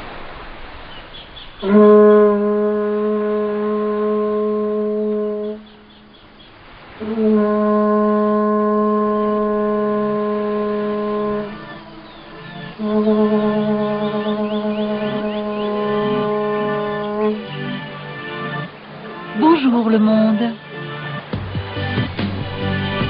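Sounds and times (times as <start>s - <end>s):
conch shell trumpet blasts: 1.6s - 5.8s, 7.0s - 19.4s.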